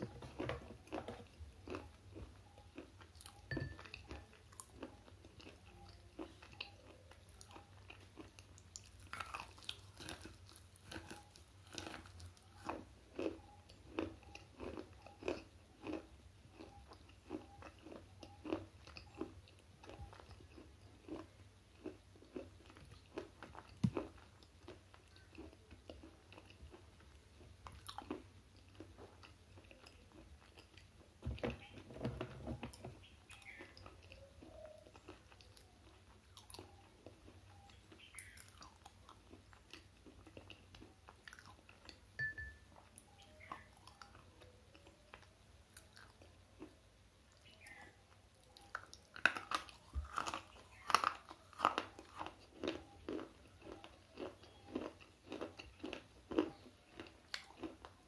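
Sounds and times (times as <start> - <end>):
pencil being chewed crunching: 0.1 - 30.9, 48.4 - 58.0.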